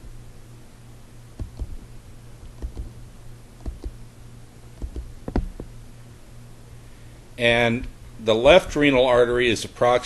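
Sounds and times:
faint low hum: 0:00.0 - 0:10.0
computer mouse clicking: 0:01.4 - 0:01.8, 0:02.5 - 0:03.0, 0:03.6 - 0:04.0, 0:04.8 - 0:05.7.

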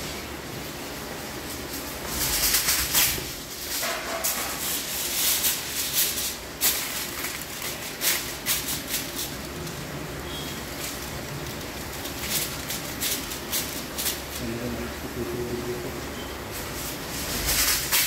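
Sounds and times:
aluminium foil crinkling: 0:01.4 - 0:15.8, 0:16.5 - 0:18.0.

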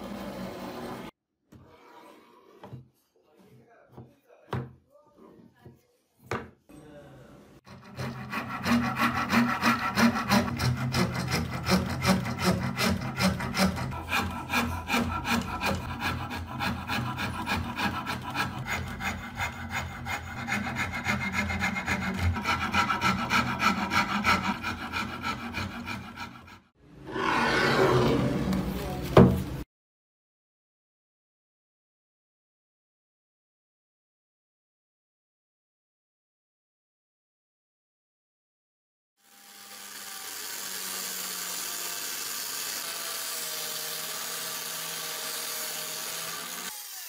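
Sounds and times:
wood rasp on wood: 0:07.7 - 0:26.7, 0:39.4 - 0:47.0.

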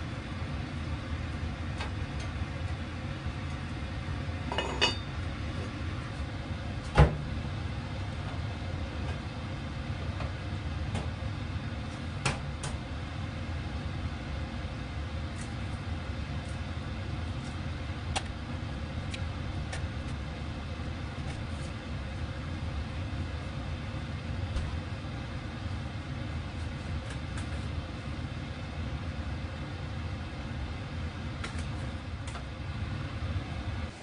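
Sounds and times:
cast iron lid clanking onto pot: 0:04.5 - 0:05.1.

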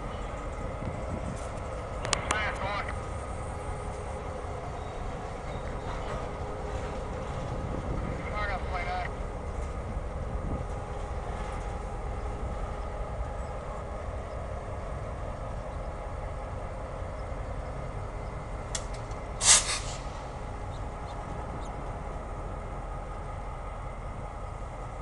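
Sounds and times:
diesel locomotive rumble: 0:00.0 - 0:25.0
loud hiss burst: 0:19.4 - 0:20.3.

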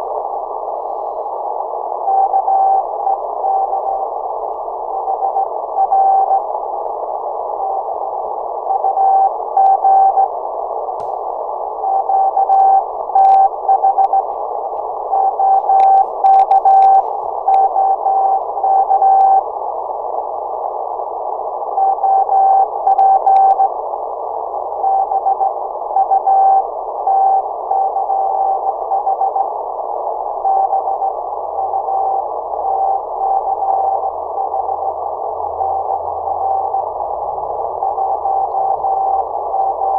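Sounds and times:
receiver hiss: 0:00.0 - 0:39.9
morse code tone: 0:11.9 - 0:14.3, 0:15.0 - 0:19.4
clicks: 0:15.6 - 0:17.7.

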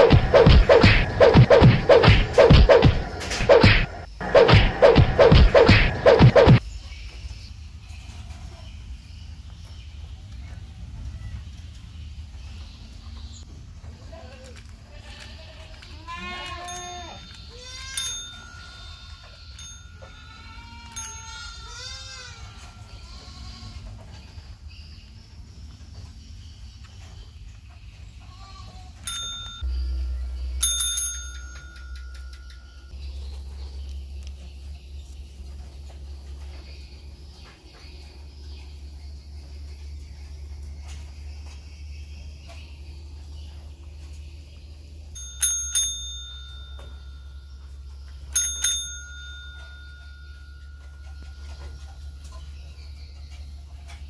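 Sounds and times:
desk service bell ringing: 0:29.1 - 0:29.8, 0:30.6 - 0:32.9, 0:45.2 - 0:47.7, 0:48.3 - 0:51.9.

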